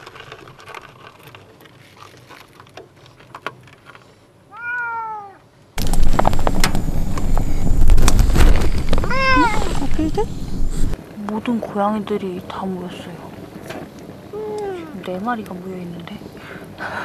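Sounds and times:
cat meowing: 4.5s - 5.4s, 9.0s - 9.8s
loud rustling with crackles: 5.8s - 11.2s.

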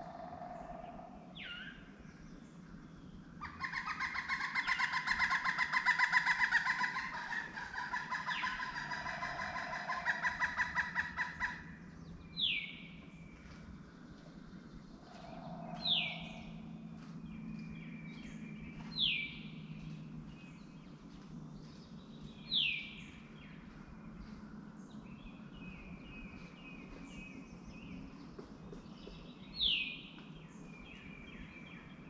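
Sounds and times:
bird chattering calls: 3.4s - 11.6s.

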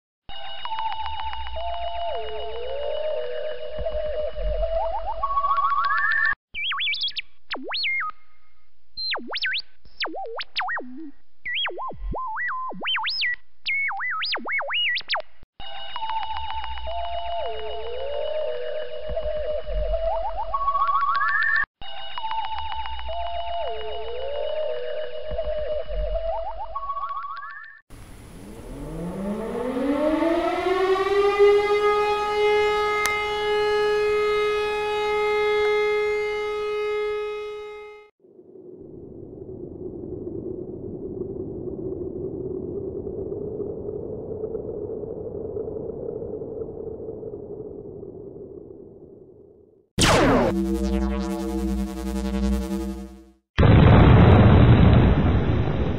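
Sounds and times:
siren winding up: 0.7s - 6.4s, 22.3s - 27.8s, 28.4s - 38.1s, 50.0s - 53.4s
synthesized swooping whistle tone: 1.6s - 8.1s, 28.7s - 38.0s, 50.0s - 53.3s.

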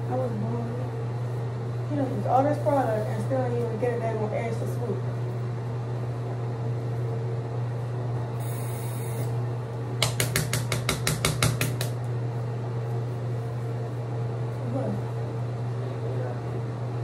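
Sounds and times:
sharp taps: 10.0s - 12.0s.

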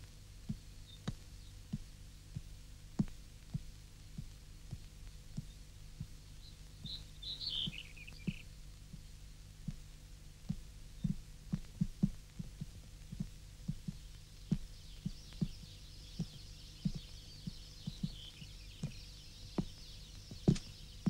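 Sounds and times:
low steady hum: 0.0s - 21.0s
hooves knocking on rock: 10.5s - 20.8s
falling bird chirps: 14.9s - 21.0s.

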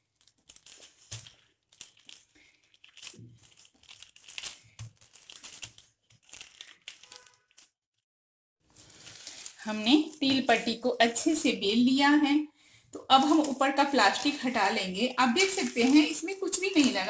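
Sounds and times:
plastic sheeting crinkling: 0.0s - 7.8s, 8.7s - 10.1s, 15.2s - 17.0s.

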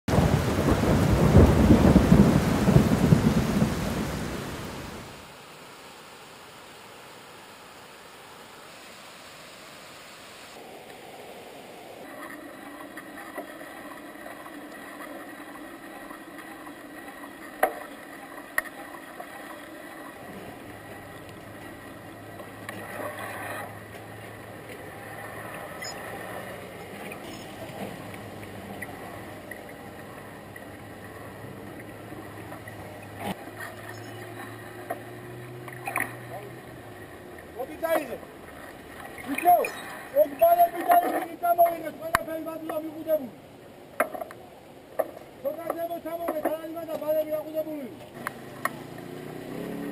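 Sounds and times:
vehicle engines humming: 19.7s - 39.2s, 48.0s - 49.9s.

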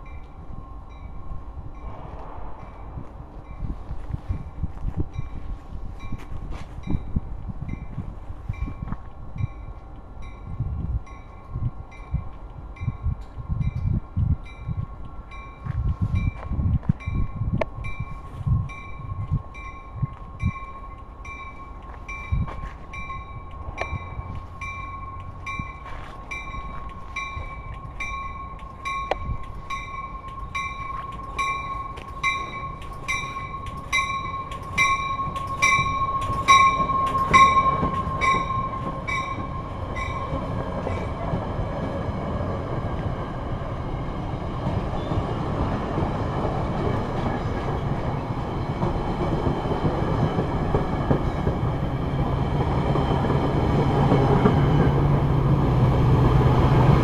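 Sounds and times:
train bell ringing: 0.0s - 2.0s, 2.6s - 42.4s
train coaches rumbling past: 0.0s - 57.0s.

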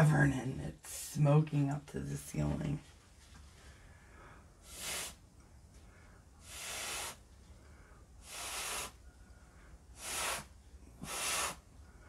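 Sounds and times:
breath blown through a straw: 4.6s - 5.2s, 6.4s - 7.3s, 8.2s - 9.1s, 9.9s - 11.7s.

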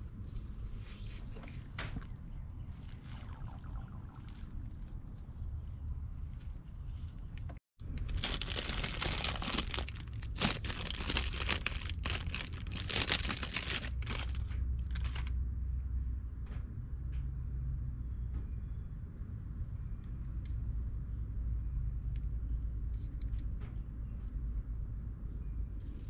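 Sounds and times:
low hum: 0.0s - 8.2s
packaging being torn and crinkled: 8.0s - 15.3s.

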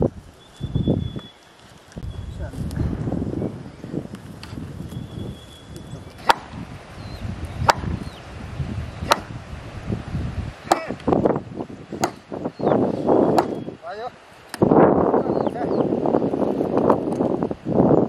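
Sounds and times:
blows on wooden fence post: 4.0s - 17.7s.

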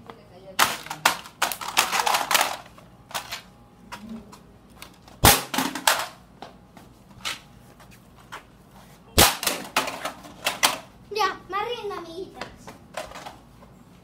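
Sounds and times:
plastic toy smashing bangs: 5.2s - 6.2s, 9.2s - 10.8s.

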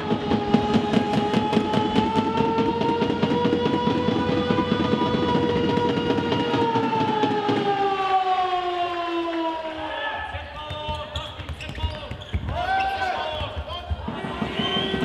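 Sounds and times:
fast clatter of beats: 0.0s - 7.9s, 10.3s - 15.0s
long horn-like tone: 1.1s - 6.9s.

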